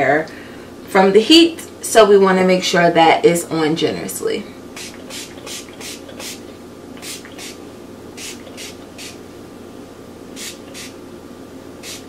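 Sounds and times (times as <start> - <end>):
pump spray bottle spritzing: 4.8 - 7.6, 8.2 - 9.2, 10.4 - 11.0.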